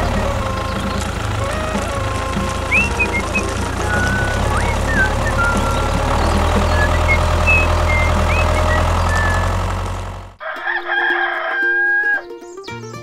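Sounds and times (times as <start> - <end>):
rooster crowing: 0.0 - 9.5, 10.4 - 12.3
bird chirps: 0.0 - 9.6, 11.8 - 13.0
tractor engine running: 0.0 - 10.4.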